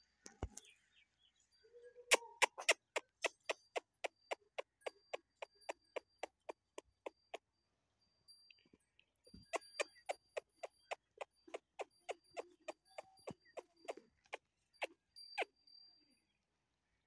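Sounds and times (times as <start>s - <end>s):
animal chirping calls: 1.9s - 7.4s, 9.5s - 15.5s.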